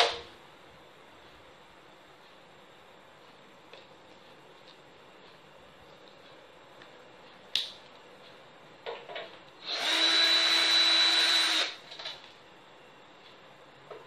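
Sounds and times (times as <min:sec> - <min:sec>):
power drill whining: 0:09.6 - 0:11.8.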